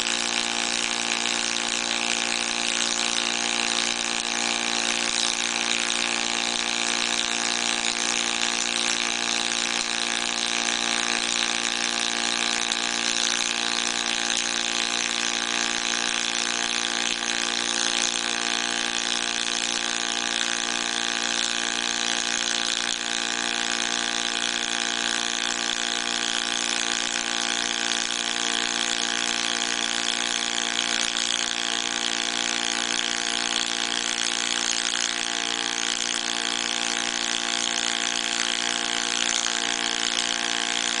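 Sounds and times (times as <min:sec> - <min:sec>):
welding arc hissing: 0:00.0 - 0:41.0.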